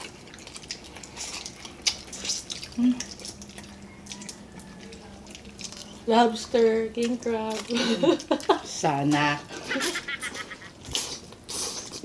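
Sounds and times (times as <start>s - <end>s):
wet smacking and sucking: 0.0s - 6.0s.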